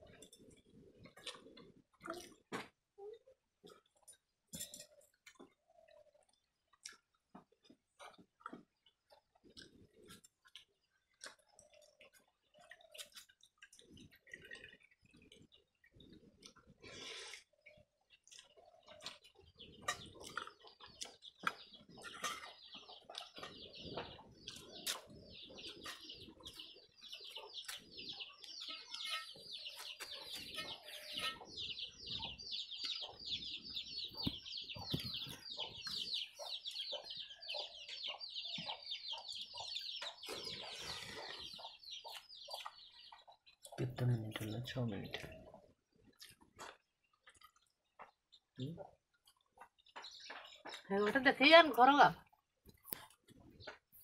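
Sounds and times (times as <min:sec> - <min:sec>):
chicks peeping: 0:13.8 - 0:54.0.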